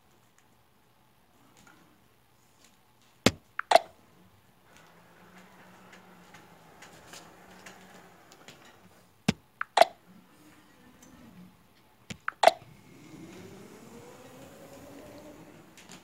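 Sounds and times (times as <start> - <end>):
sharp clicks: 3.3 - 3.9, 9.3 - 10.0, 12.1 - 12.6.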